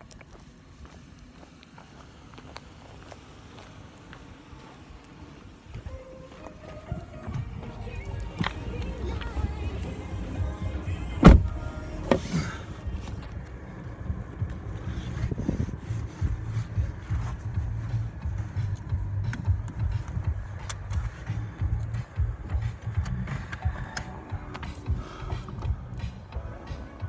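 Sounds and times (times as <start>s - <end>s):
car road and engine noise: 0.0s - 27.0s.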